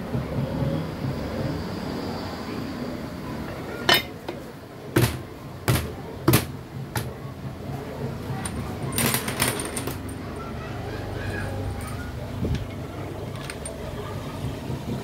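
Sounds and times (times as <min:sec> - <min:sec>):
low workshop hum: 0:00.0 - 0:15.0
metal parts knocking and clinking: 0:03.9 - 0:04.4, 0:05.0 - 0:07.2, 0:08.3 - 0:10.4, 0:11.8 - 0:13.9.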